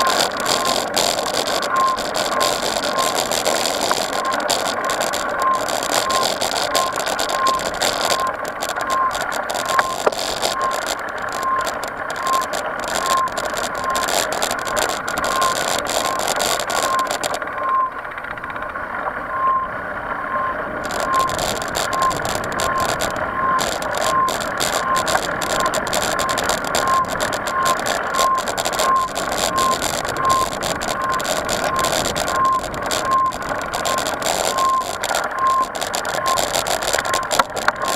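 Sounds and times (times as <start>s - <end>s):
sharp clicks: 0.0s - 18.8s, 20.8s - 37.9s
bike tyres rolling on dirt: 0.0s - 19.2s, 20.6s - 37.9s
rattle over rough ground: 0.0s - 19.2s, 20.8s - 37.9s
wind: 0.0s - 37.9s.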